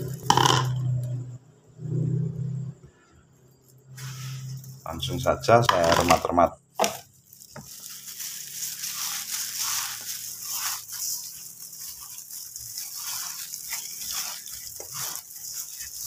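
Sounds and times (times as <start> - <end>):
gloved hand rubbing sugar: 4.0 - 5.3, 7.2 - 16.0.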